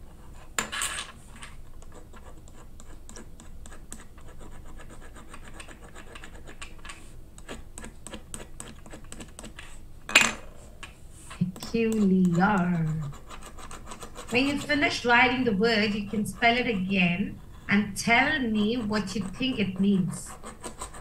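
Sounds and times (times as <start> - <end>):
pen clicks and scratches: 1.8 - 9.8, 11.3 - 17.1, 18.1 - 21.0.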